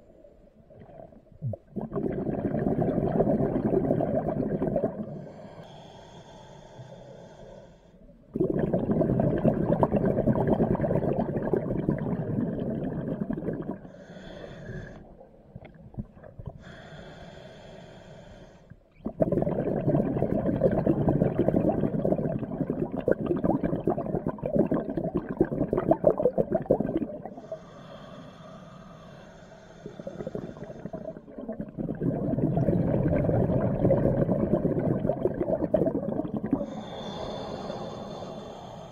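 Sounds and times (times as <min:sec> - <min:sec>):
exhaled bubbles rumbling: 0:00.6 - 0:05.2, 0:08.3 - 0:13.9, 0:15.5 - 0:16.7, 0:19.0 - 0:27.4, 0:30.0 - 0:37.1
regulator hiss of inhaling: 0:05.1 - 0:08.0, 0:13.9 - 0:15.1, 0:16.6 - 0:18.8, 0:27.3 - 0:31.3, 0:36.6 - 0:38.9.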